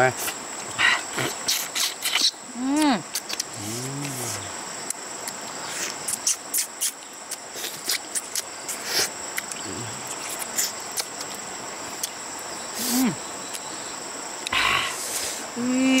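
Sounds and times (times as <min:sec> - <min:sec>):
high-pitched insect drone: 0:00.0 - 0:16.0
wet chewing and lip-smacking: 0:01.2 - 0:02.3, 0:03.1 - 0:04.2, 0:04.8 - 0:11.4.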